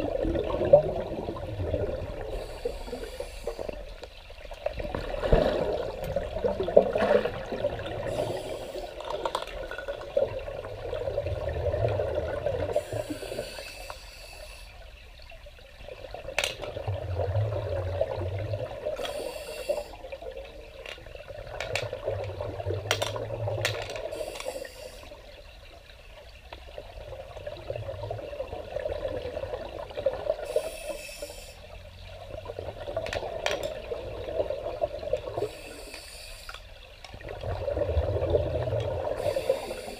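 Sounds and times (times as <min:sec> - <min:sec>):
bubbles hissing: 0:00.0 - 0:04.0, 0:04.7 - 0:14.8, 0:16.8 - 0:20.4, 0:21.3 - 0:25.4, 0:27.4 - 0:31.8, 0:37.2 - 0:39.9
scuba breathing underwater: 0:02.2 - 0:03.9, 0:08.0 - 0:09.2, 0:12.7 - 0:14.8, 0:18.9 - 0:20.1, 0:24.0 - 0:25.2, 0:30.4 - 0:31.7, 0:35.4 - 0:36.7, 0:39.0 - 0:39.9.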